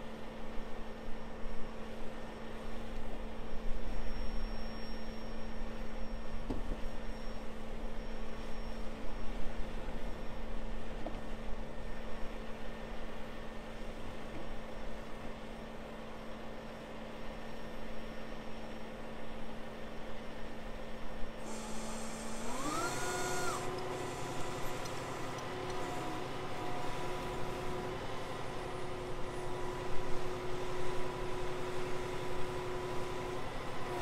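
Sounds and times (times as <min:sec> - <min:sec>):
diesel truck engine: 0:21.4 - 0:34.0.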